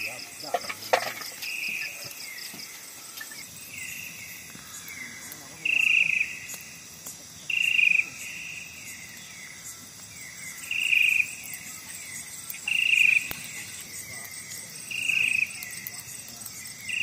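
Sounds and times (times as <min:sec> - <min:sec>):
cricket chirping bursts: 0:00.0 - 0:17.0
night insects: 0:00.0 - 0:17.0.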